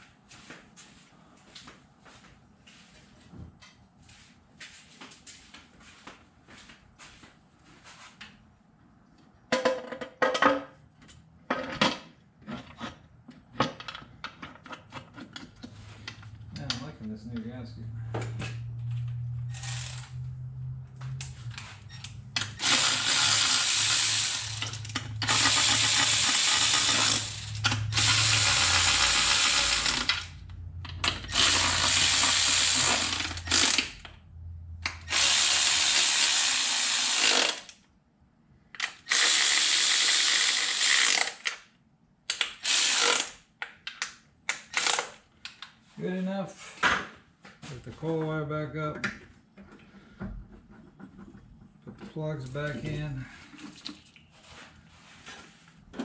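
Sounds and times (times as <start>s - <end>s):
electric ratchet spinning: 19.1s - 20.4s, 21.9s - 34.0s, 34.9s - 37.8s, 38.8s - 41.6s, 42.6s - 43.4s, 44.6s - 45.2s.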